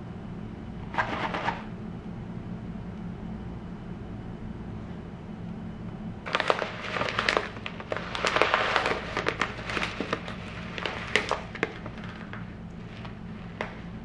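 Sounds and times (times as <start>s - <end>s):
plastic bag crinkling: 6.3s - 14.0s.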